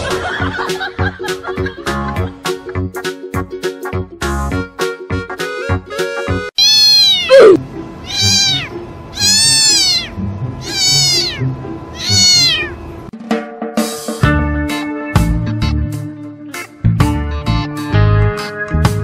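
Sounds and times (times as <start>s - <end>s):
music: 0.0s - 6.6s, 7.6s - 19.0s
cat meowing loudly: 6.6s - 12.8s.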